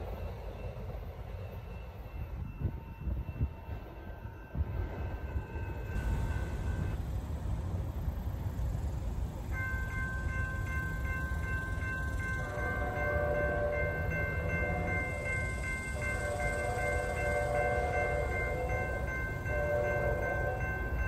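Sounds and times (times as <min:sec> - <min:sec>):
distant train horn blasts: 0:11.4 - 0:21.0.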